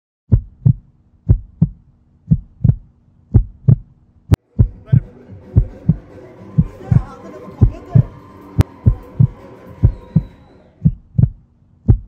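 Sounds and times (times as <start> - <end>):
heartbeat thumps: 0.3 - 12.0
fuller layer of sound: 4.4 - 10.8.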